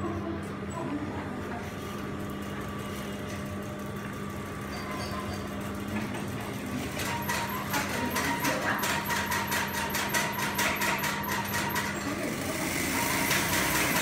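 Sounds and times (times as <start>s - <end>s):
sewing machine motor hum: 0.7s - 14.0s.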